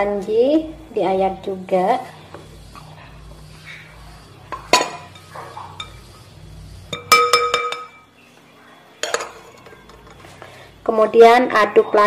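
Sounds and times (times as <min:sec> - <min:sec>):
sieve clinking against glass bowl: 0:06.9 - 0:08.0.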